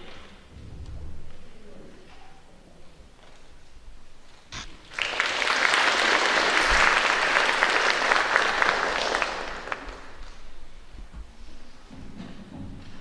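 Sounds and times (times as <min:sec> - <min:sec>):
audience applauding: 0:04.6 - 0:10.5.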